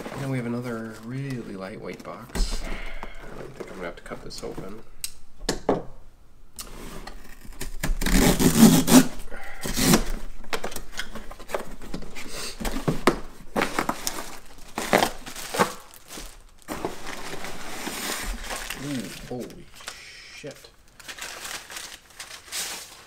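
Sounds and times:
packaging rustling: 6.7 - 20.0, 20.8 - 23.0
cardboard box tearing: 7.1 - 10.2, 13.6 - 19.4.

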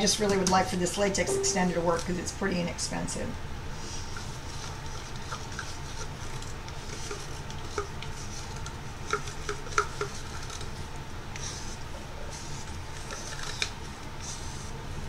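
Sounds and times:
low steady hum: 0.0 - 3.8.

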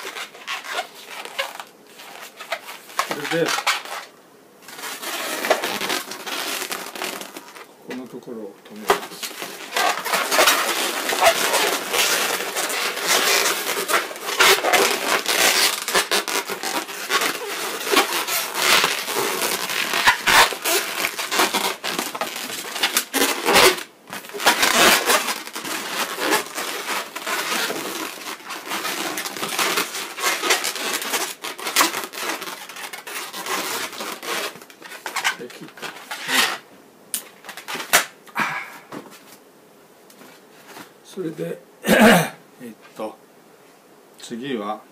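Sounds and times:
balloons squeaking and rubbing: 0.0 - 36.6, 37.2 - 38.2.

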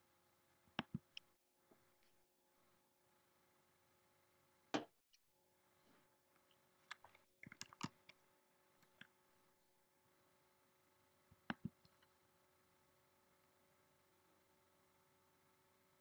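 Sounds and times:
faint steady hum: 0.0 - 16.0
sharp clicks: 6.9 - 8.2.

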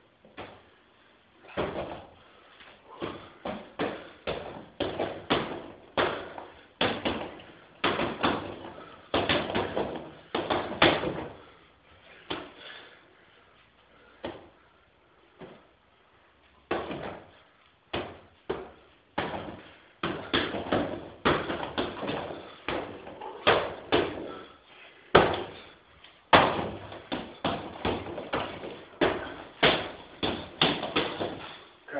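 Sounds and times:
punches and kicks on pads: 1.4 - 2.1, 2.9 - 11.4, 16.7 - 24.5, 25.1 - 25.6, 26.3 - 31.6.

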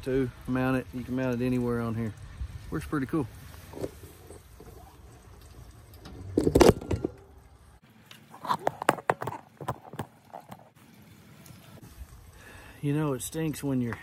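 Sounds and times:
metal clunk: 6.0 - 7.3.

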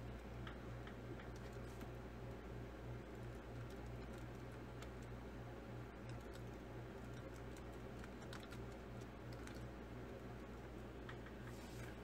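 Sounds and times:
steady low hum: 0.0 - 12.0
keyboard typing: 3.3 - 5.2, 6.0 - 9.7.

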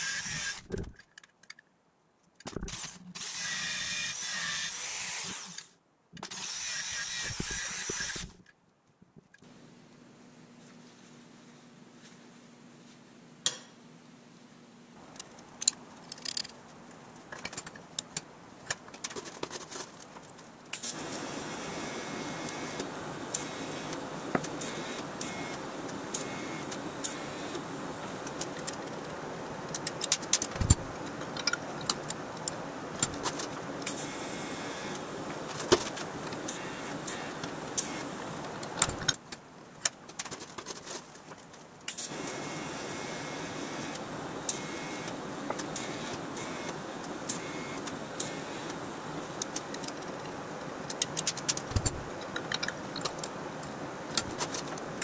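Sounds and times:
welding arc hissing: 2.6 - 5.7, 20.8 - 28.3, 33.8 - 35.1, 36.4 - 38.3, 41.9 - 49.4.

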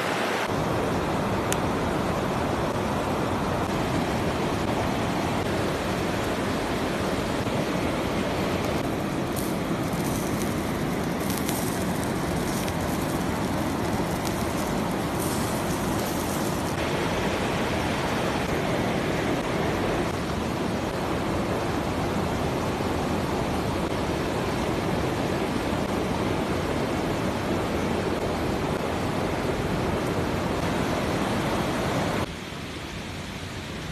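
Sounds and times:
river rushing: 0.0 - 33.9.

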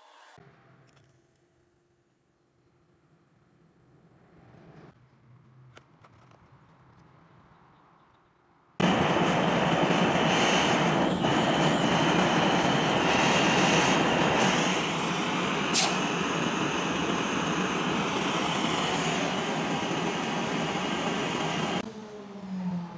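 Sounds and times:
propane torch rushing: 8.8 - 21.8.

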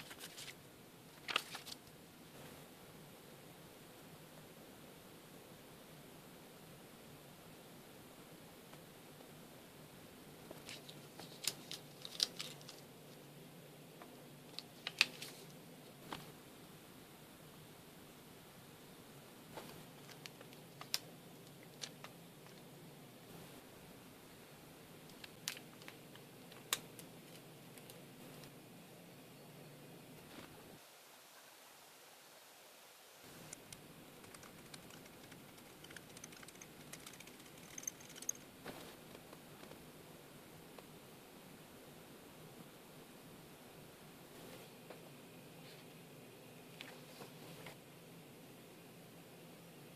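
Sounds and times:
pen and paper clicks and taps: 34.2 - 38.4.

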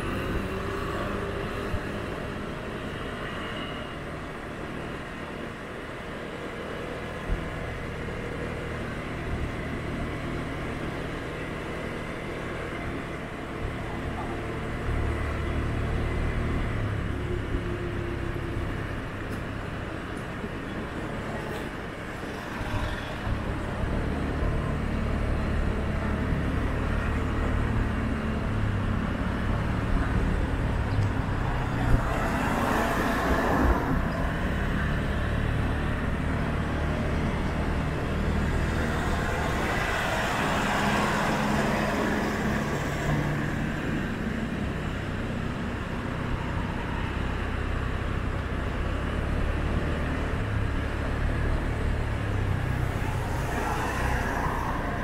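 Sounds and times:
road traffic: 0.0 - 55.0
car engine and road hum: 4.2 - 55.0.

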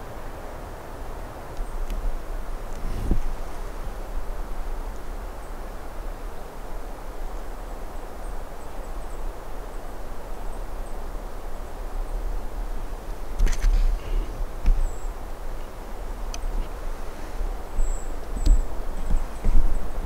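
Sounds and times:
wind rumble on microphone: 0.0 - 20.0
faint high ticks: 16.3 - 16.7.

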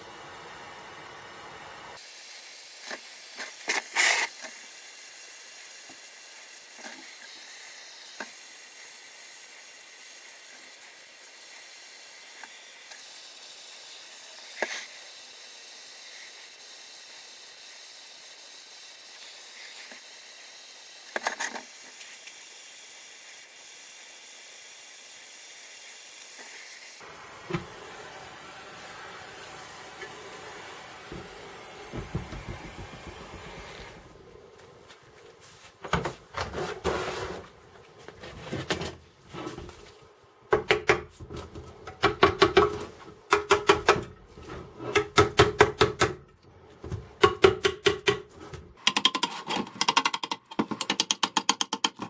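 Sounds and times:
rust-cleaning tool hissing: 0.0 - 35.0.

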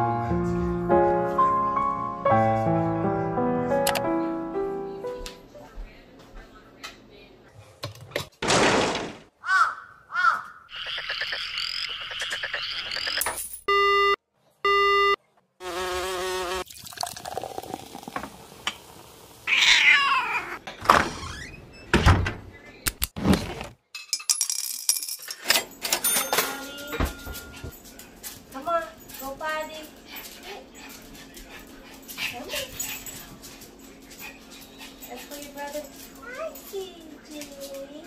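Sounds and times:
electronic beeps: 10.8 - 15.2.

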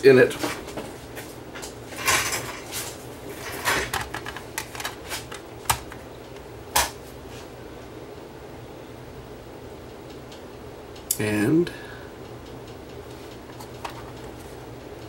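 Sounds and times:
plastic clicks and rattles: 3.7 - 6.0, 13.4 - 14.4.

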